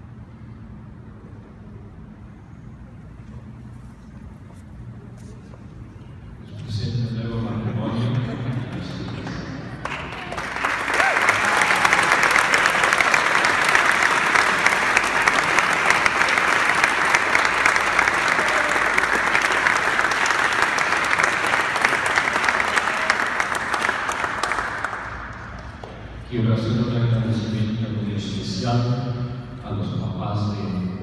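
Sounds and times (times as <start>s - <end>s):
crowd applauding: 8.0s - 26.2s.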